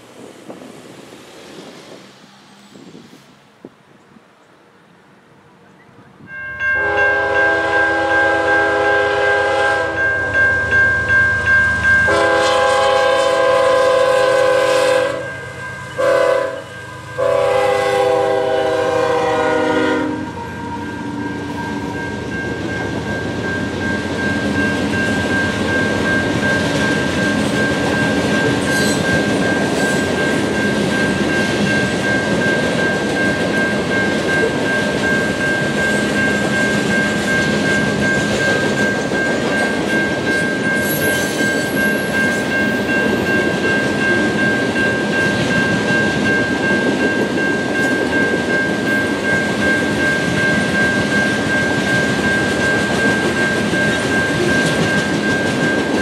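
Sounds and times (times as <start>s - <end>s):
locomotive air horn blasts: 6.8s - 10.1s, 12.1s - 15.4s, 16.0s - 20.8s.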